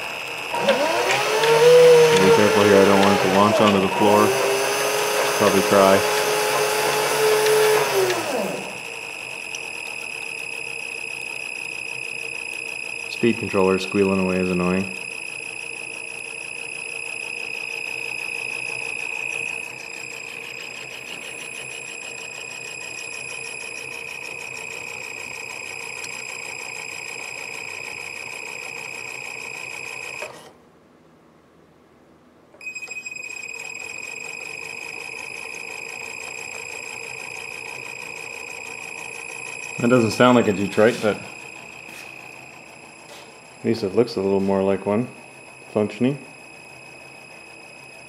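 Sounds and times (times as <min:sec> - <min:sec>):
speed controller high-pitched whine: 0:00.0 - 0:30.5, 0:32.6 - 0:48.0.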